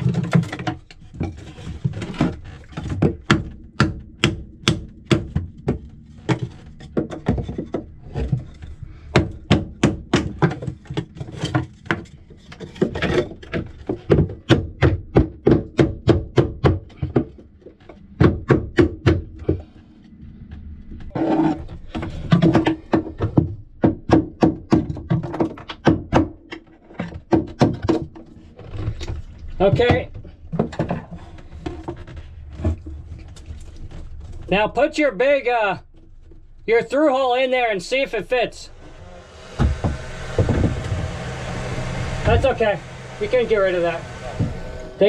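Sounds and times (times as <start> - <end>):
hammer striking wooden block: 3.0 - 7.7, 9.2 - 10.7.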